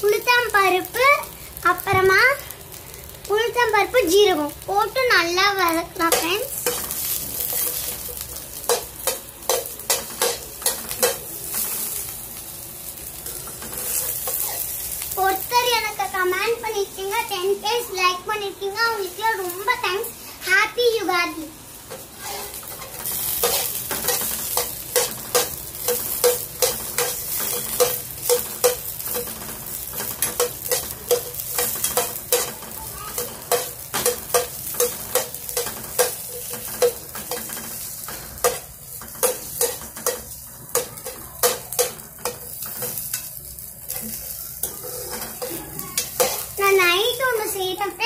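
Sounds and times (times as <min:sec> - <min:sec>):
okra sizzling in oil: 0:00.0 - 0:48.0
spoon clinking and scraping pan: 0:22.2 - 0:32.6, 0:33.2 - 0:43.3, 0:44.2 - 0:46.6.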